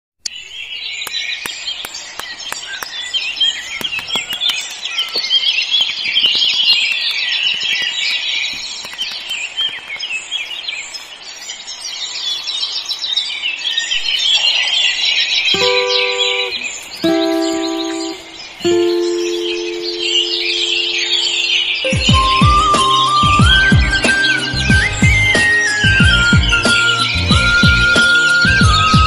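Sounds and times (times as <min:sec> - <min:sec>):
small birds chirping: 0:00.2 - 0:29.0
faint clicks: 0:03.7 - 0:10.2.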